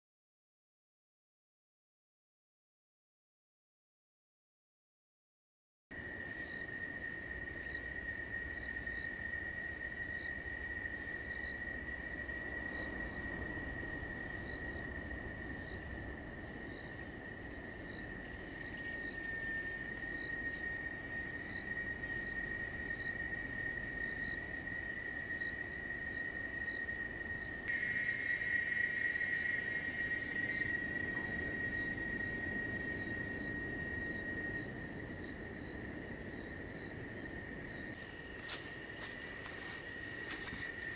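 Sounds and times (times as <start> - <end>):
faint insect chirps: 5.9 - 40.9
insects trilling: 5.9 - 40.9
high hissing insect buzz: 6.0 - 40.9.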